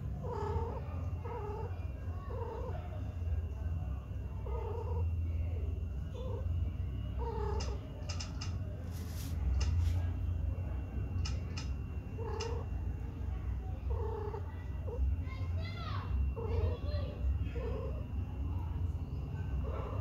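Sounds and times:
cat yowling: 0:00.2 - 0:02.9, 0:04.4 - 0:05.0, 0:07.2 - 0:07.8, 0:12.2 - 0:12.7, 0:13.9 - 0:15.0, 0:16.3 - 0:16.8
faint clicks: 0:07.5 - 0:08.6, 0:11.2 - 0:11.8.

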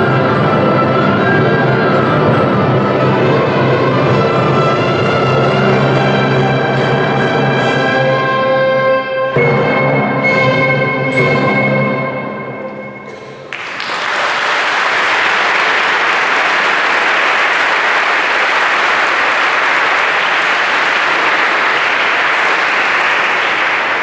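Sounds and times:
audience applauding: 0:13.4 - 0:24.0.

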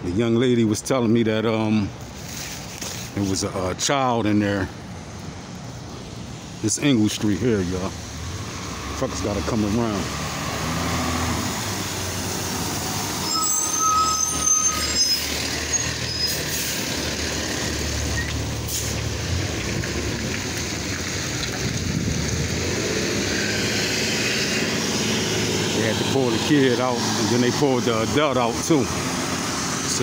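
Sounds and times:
high brake squeal: 0:13.0 - 0:17.0, 0:18.1 - 0:19.0
air brake hiss: 0:18.7 - 0:19.0.

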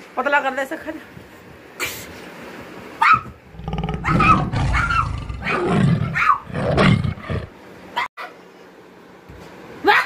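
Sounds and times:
puppy growling and yapping: 0:03.5 - 0:07.5.

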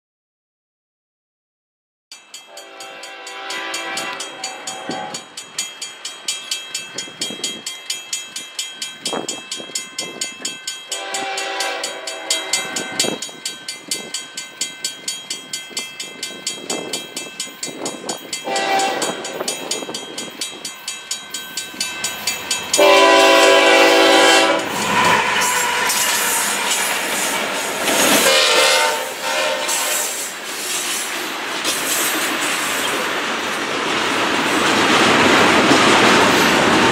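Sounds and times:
crossing bell ringing: 0:02.1 - 0:33.1
train horn blasts: 0:02.5 - 0:05.3, 0:10.9 - 0:13.2, 0:18.4 - 0:19.4, 0:22.8 - 0:30.3
diesel locomotives rumbling: 0:02.5 - 0:36.9.

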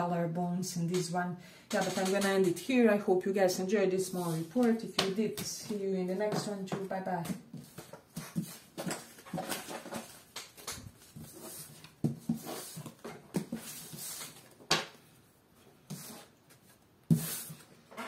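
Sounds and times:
cards sliding across wood: 0:17.1 - 0:17.7.

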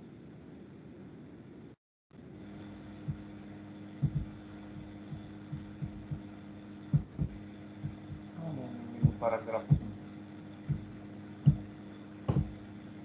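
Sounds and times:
steady low hum: 0:00.0 - 0:13.0
dull low thumps: 0:02.9 - 0:03.3, 0:04.0 - 0:12.7.

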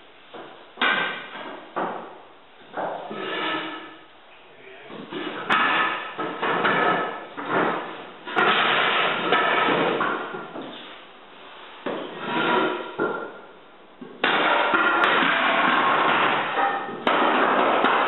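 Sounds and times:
sharp knocks on floor boards: 0:00.3 - 0:03.1, 0:05.0 - 0:10.8, 0:14.0 - 0:18.0
wooden floor boards clattering: 0:05.0 - 0:10.9, 0:14.2 - 0:18.0.

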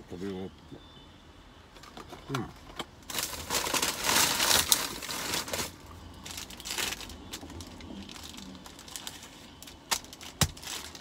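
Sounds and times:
paper wrapper crinkling and rustling: 0:03.0 - 0:11.0.

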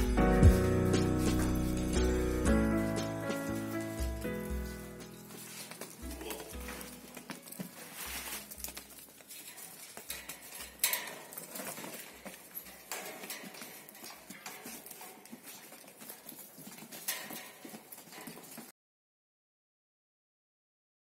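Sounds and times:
goat hooves clattering: 0:00.0 - 0:18.7.

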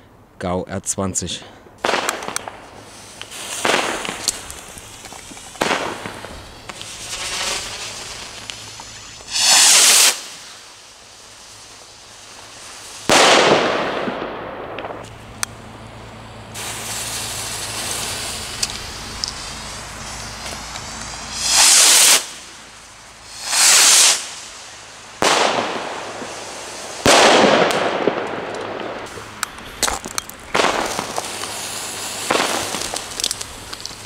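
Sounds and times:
loud firework blasts: 0:01.6 - 0:34.0
distant firework cracks: 0:01.7 - 0:15.8, 0:16.5 - 0:34.0
firework rockets whooshing: 0:01.7 - 0:34.0
hiss of spraying sparks: 0:01.8 - 0:13.2, 0:16.6 - 0:27.1, 0:30.6 - 0:34.0.

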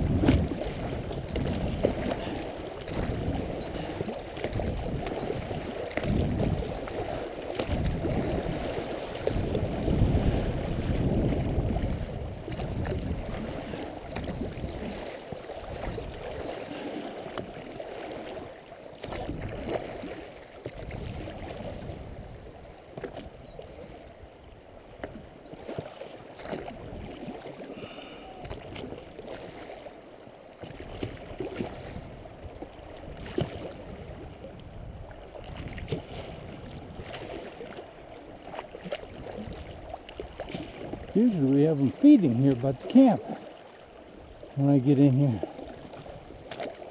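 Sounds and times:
low rumble in gusts: 0:00.0 - 0:02.0
river water lapping on a hull: 0:00.0 - 0:46.9.

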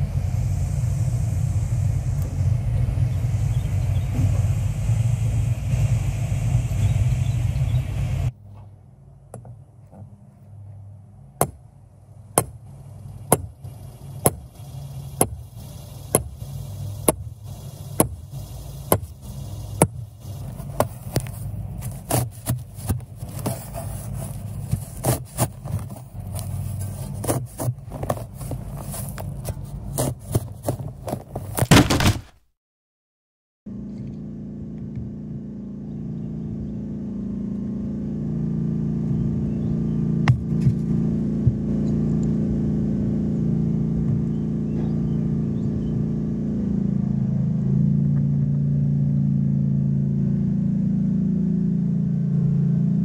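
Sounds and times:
loud low rumble: 0:00.0 - 0:09.3, 0:33.7 - 0:53.0
steady low hum: 0:00.0 - 0:32.2, 0:33.7 - 0:53.0
sledgehammer striking metal rod: 0:11.4 - 0:11.6, 0:12.4 - 0:12.6, 0:14.2 - 0:14.5.

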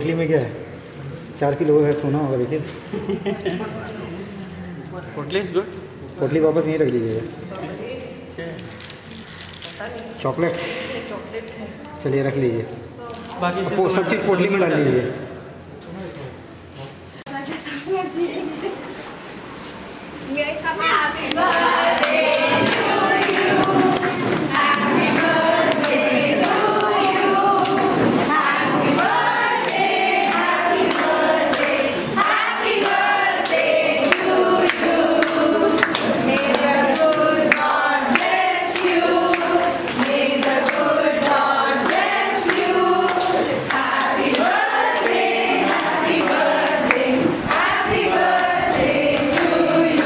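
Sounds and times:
group singing in chorus: 0:20.9 - 0:50.0
people clapping: 0:21.2 - 0:50.0.

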